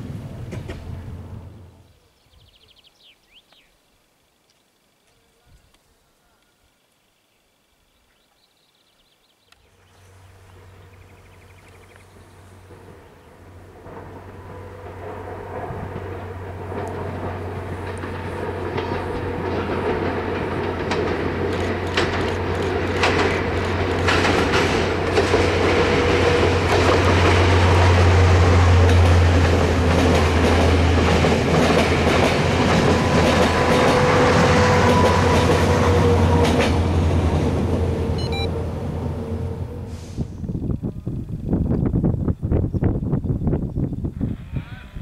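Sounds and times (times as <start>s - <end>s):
diesel train engine drone: 0.0s - 1.9s, 9.7s - 41.7s
wheels clicking over rail joints: 12.6s - 27.8s.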